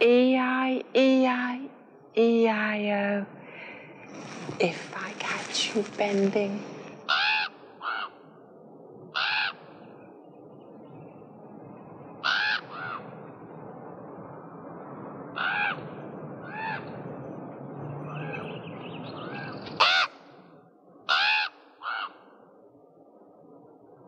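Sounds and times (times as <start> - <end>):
background hiss: 0.0 - 15.5
crows cawing: 7.1 - 8.2, 9.1 - 9.7, 12.2 - 13.0, 15.4 - 15.8, 19.8 - 20.2, 21.1 - 22.4.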